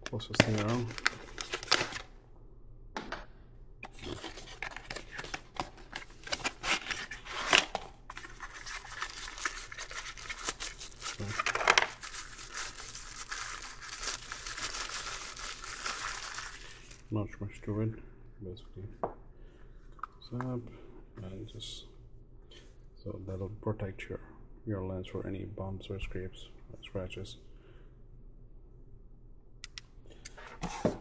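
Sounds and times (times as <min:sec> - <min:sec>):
plastic tearing: 0:00.2 - 0:02.1, 0:03.8 - 0:17.0
plastic bag crinkling: 0:00.3 - 0:02.1, 0:03.9 - 0:17.1.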